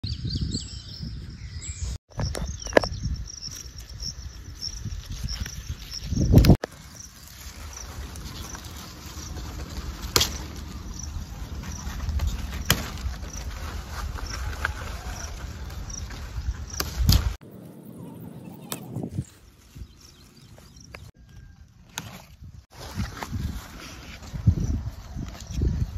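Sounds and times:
hands rustling through plants: 0:04.8 - 0:17.4.

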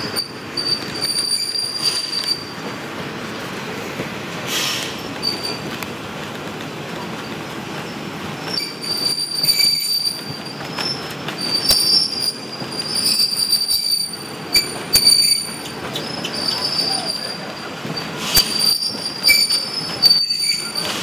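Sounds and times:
high-pitched wheel squeal: 0:00.0 - 0:02.6, 0:05.2 - 0:05.6, 0:08.4 - 0:21.0
train wheels running on rail: 0:00.0 - 0:21.0.

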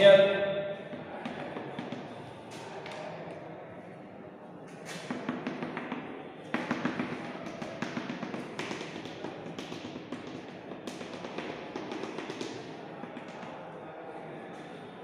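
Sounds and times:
chalk tapping on chalkboard: 0:04.9 - 0:13.6.

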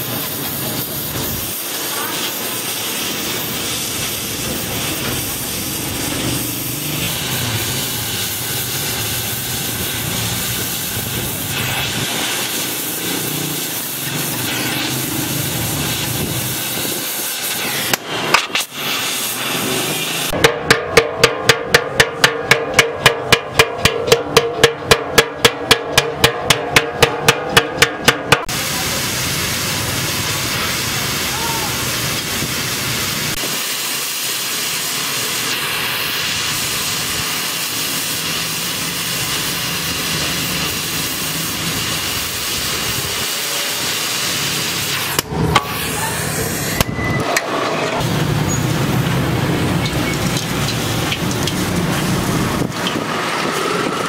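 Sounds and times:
gas welding torch hissing: 0:00.0 - 0:54.0
sharp knocks: 0:20.4 - 0:28.5.

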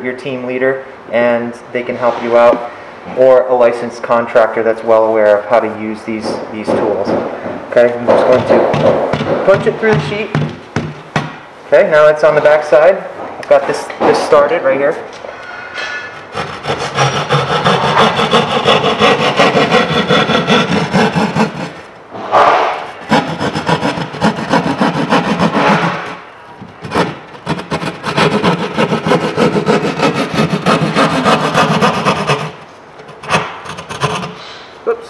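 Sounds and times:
hand saw cutting drywall: 0:16.2 - 0:21.8, 0:23.0 - 0:26.2, 0:26.8 - 0:32.6, 0:33.2 - 0:34.4.

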